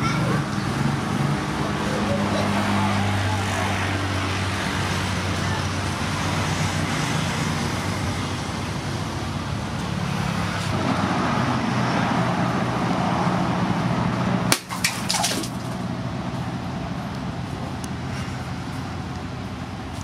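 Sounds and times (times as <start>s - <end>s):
sword blade strike: 14.5s - 15.5s.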